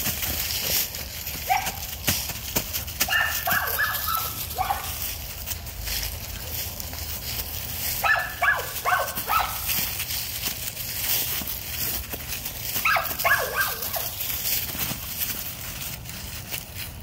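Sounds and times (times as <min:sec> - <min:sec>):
dry leaves rustling and crunching: 0:00.0 - 0:17.0
puppy barking: 0:01.4 - 0:02.0, 0:03.0 - 0:05.1, 0:08.0 - 0:09.8, 0:12.8 - 0:14.2.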